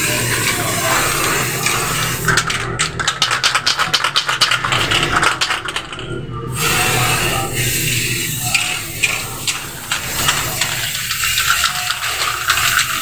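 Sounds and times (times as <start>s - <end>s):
spray can hissing: 0.0s - 2.6s, 6.6s - 13.0s
spray can mixing ball rattling: 0.0s - 13.0s.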